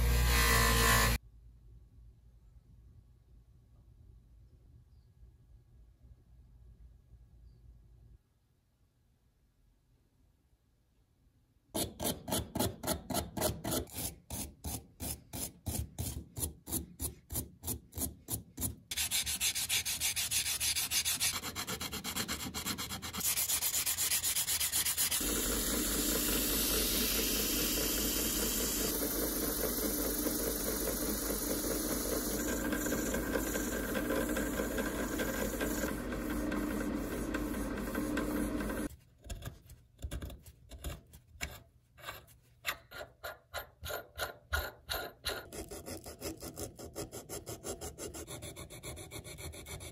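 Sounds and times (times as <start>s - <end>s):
brush scrubbing metal: 18.9s - 38.9s
sanding hiss: 23.2s - 38.9s
drill press motor hum: 25.2s - 38.9s.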